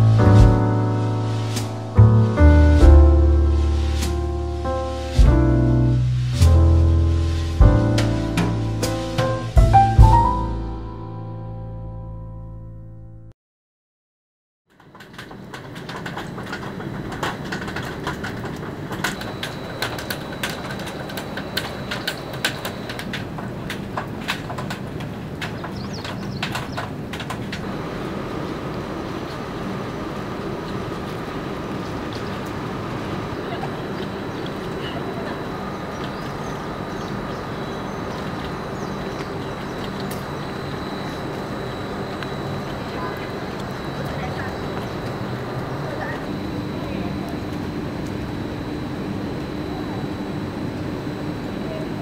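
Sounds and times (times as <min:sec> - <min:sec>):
even rushing hiss: 0:00.0 - 0:10.5
raindrops splashing: 0:00.0 - 0:10.5
thin high whine: 0:00.0 - 0:11.6, 0:19.0 - 0:23.2, 0:27.6 - 0:52.0
rain on pavement: 0:15.0 - 0:36.4, 0:37.2 - 0:46.2.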